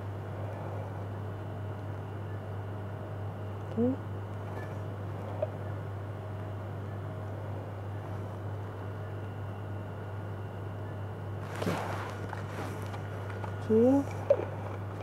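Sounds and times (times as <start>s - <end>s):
low room hum: 0.0s - 15.0s
sleeve rustling on microphone: 11.4s - 14.2s.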